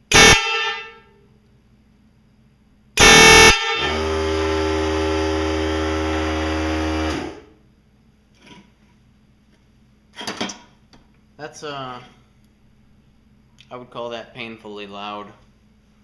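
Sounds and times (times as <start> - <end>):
air horn blasts: 0.1 - 1.2, 3.0 - 6.0.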